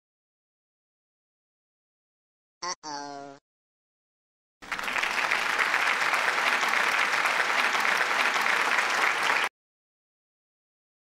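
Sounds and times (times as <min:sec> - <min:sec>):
crowd applause: 0:04.6 - 0:09.5.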